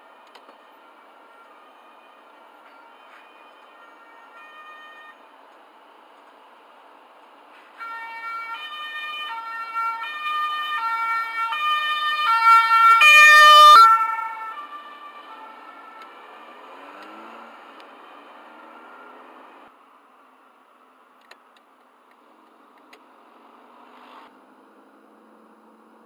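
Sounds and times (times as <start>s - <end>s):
police car two-tone siren: 0.0s - 5.3s, 7.8s - 19.7s.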